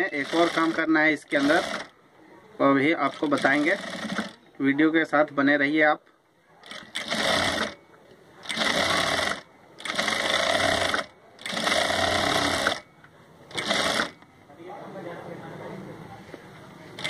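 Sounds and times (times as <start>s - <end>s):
sewing machine stitching: 0.0s - 1.9s, 3.0s - 4.4s, 6.6s - 7.8s, 8.4s - 12.8s, 13.5s - 14.2s.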